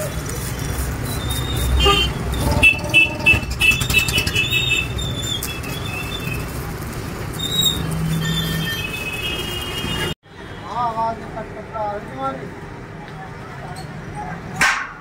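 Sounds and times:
welding arc crackling and hissing: 0:00.0 - 0:10.0.

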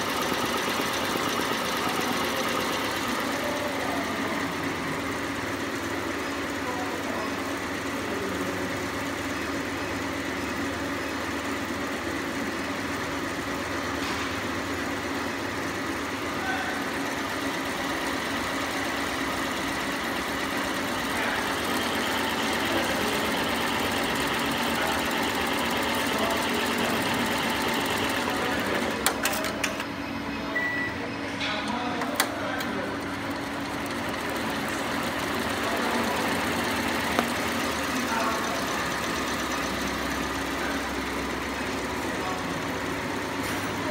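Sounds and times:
embroidery machine stitching: 0:00.0 - 0:13.8, 0:14.8 - 0:30.0, 0:31.7 - 0:43.9
brief high beep: 0:30.5 - 0:31.1.

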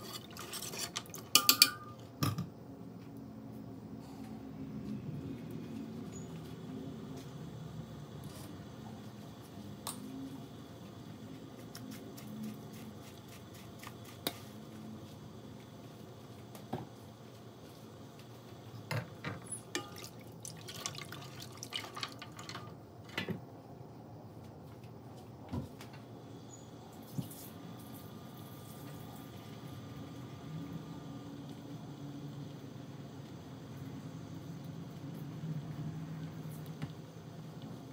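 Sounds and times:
broth simmering and bubbling: 0:19.7 - 0:22.7.

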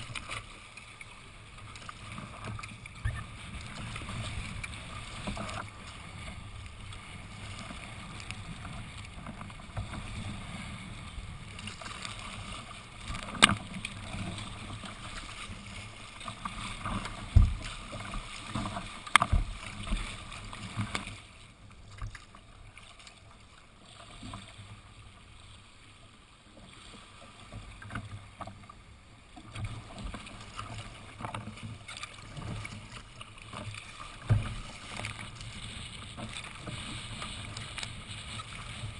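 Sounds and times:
water slaps on hull: 0:00.0 - 0:25.3, 0:26.6 - 0:38.9
water washing along kayak hull: 0:00.0 - 0:38.9.

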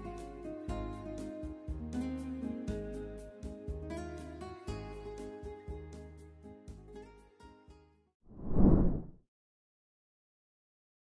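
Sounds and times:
instrumental music with bass: 0:00.0 - 0:07.1.

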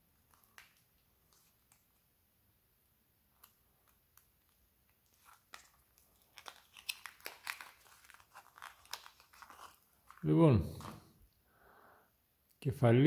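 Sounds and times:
plastic packaging crinkling and tearing: 0:00.2 - 0:02.0, 0:03.4 - 0:11.1.

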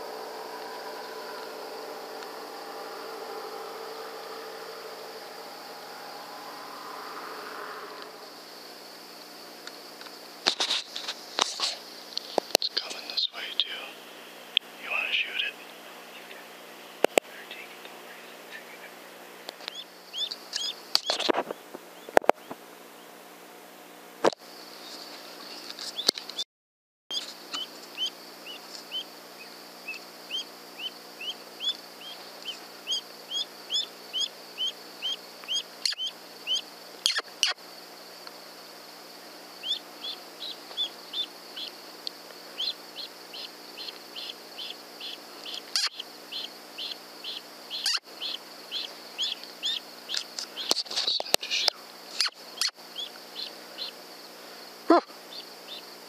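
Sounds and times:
high-pitched drone: 0:00.0 - 0:09.6
high chirping calls: 0:19.6 - 0:23.0, 0:27.1 - 0:37.6, 0:39.5 - 0:41.9, 0:42.5 - 0:54.0, 0:55.0 - 0:56.0.

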